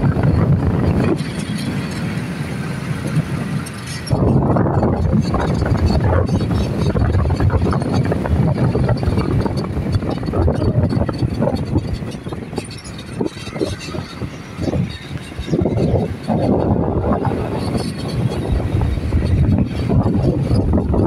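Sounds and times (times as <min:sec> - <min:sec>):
motorcycle riding noise: 0:00.0 - 0:21.0
wind buffeting microphone: 0:00.0 - 0:21.0.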